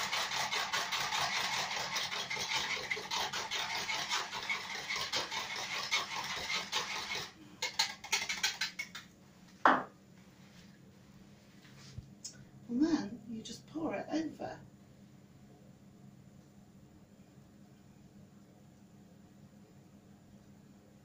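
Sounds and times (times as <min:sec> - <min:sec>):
utensil scraping plastic jug: 0:00.0 - 0:08.9.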